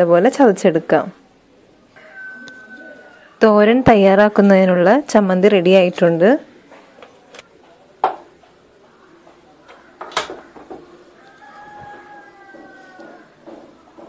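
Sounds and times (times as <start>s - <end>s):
sharp knocks: 12.6s - 14.0s.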